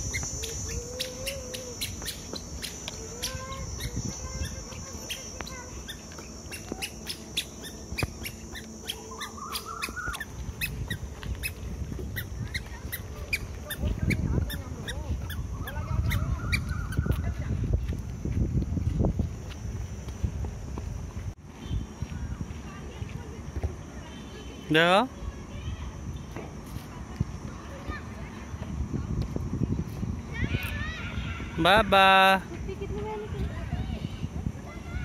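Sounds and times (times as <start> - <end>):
faint distant calls: 0.0 - 17.4
footsteps on a dirt path: 0.0 - 25.3, 26.1 - 30.8
crickets trilling: 0.0 - 35.0.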